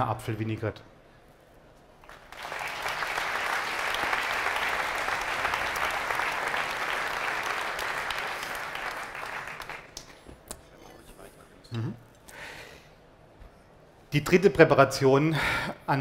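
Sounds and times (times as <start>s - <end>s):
audience applauding: 2.0s - 10.3s.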